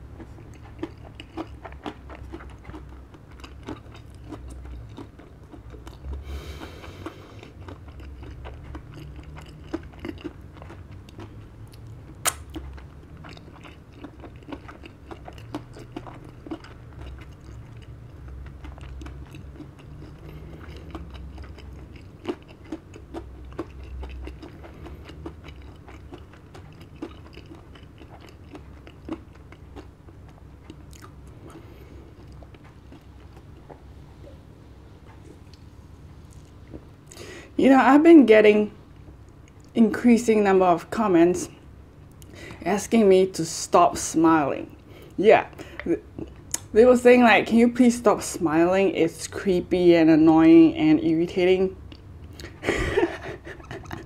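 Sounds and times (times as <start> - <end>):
person chewing: 0.0 - 37.4, 44.9 - 46.7, 51.9 - 54.0.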